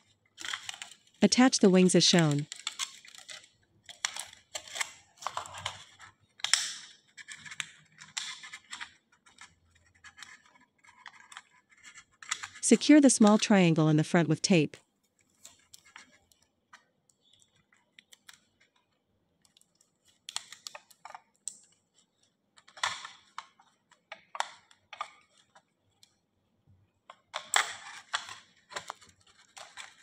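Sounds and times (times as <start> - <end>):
aluminum sheet crinkling: 0.0 - 13.6, 15.1 - 26.2, 27.0 - 30.0.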